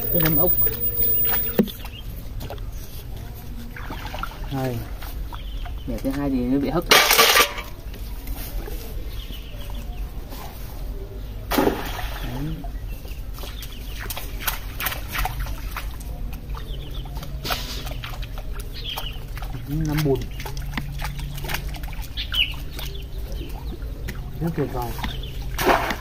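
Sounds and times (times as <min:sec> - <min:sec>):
rake rattling on metal bucket: 0:06.8 - 0:07.8
splash in pond: 0:11.5 - 0:12.6, 0:17.4 - 0:22.9, 0:25.4 - 0:26.0.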